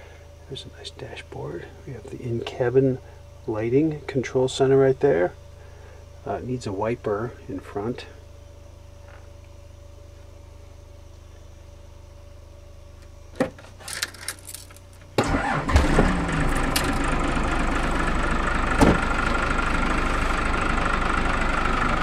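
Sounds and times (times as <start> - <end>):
diesel engine starting and idling: 15.1 - 22.0.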